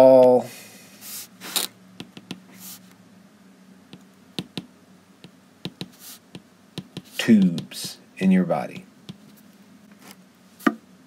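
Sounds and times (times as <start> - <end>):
stylus tapping on glass screen: 2.0 - 2.4, 3.9 - 5.9, 6.8 - 8.0.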